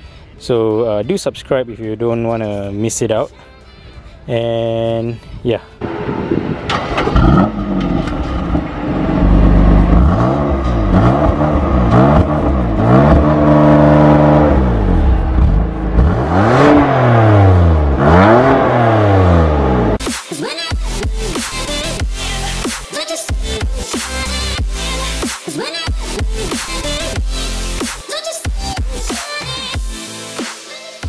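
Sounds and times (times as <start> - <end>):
car engine rev blips: 5.8 - 20.0.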